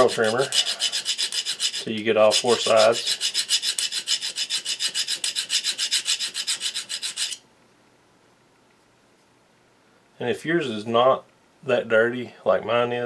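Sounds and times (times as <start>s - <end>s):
hand file rasping on steel: 0.0s - 7.4s.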